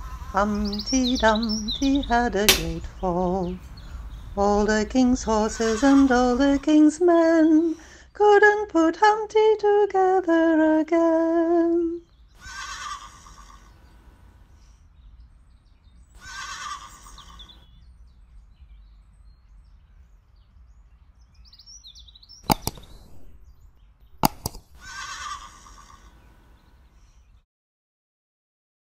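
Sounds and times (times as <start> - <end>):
sharp mouse clicks: 2.5 - 2.8, 22.4 - 23.4, 24.1 - 24.8
horse whinnying: 12.4 - 13.7, 16.2 - 17.4, 24.8 - 26.1.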